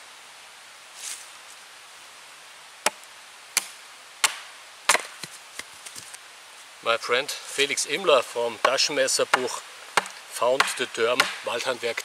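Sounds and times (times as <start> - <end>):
soft brushing sound: 0.8 - 2.2
hatchet chopping into log: 3.6 - 5.3, 8.6 - 11.5.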